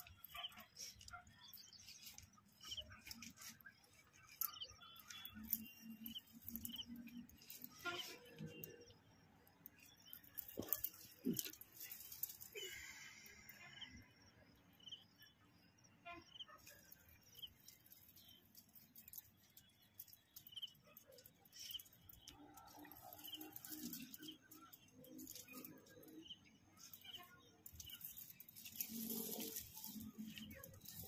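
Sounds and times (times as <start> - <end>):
faint high bird chirps: 0.0 - 11.6.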